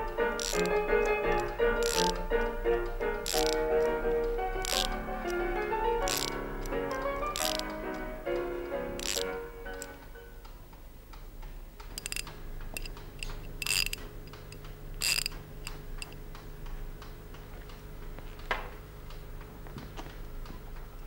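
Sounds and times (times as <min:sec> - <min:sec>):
mechanical clock ticking: 0:00.0 - 0:17.5
faint steady hum: 0:00.0 - 0:21.0
louder clicks: 0:00.4 - 0:07.8, 0:09.0 - 0:10.0, 0:12.0 - 0:16.2.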